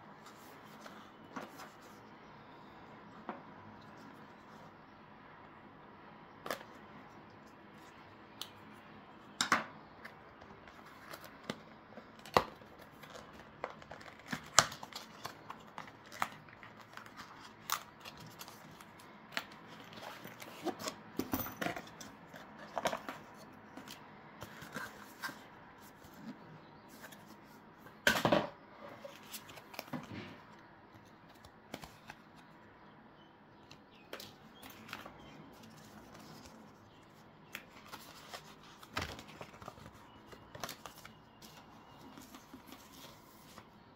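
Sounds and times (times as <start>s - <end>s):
paper rustling: 34.1s - 43.8s.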